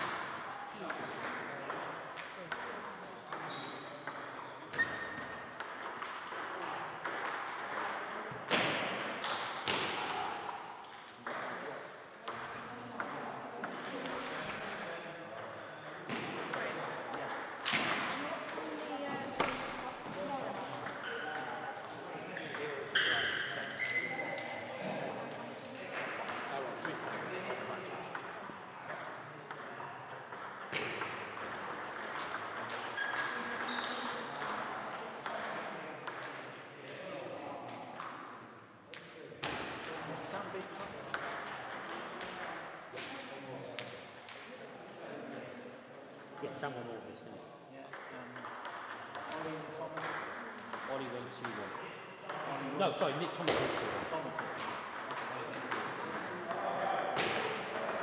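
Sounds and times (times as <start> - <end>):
table tennis balls clicking: 3.3 - 8.4, 25.3 - 37.0, 47.9 - 51.7, 53.5 - 58.0.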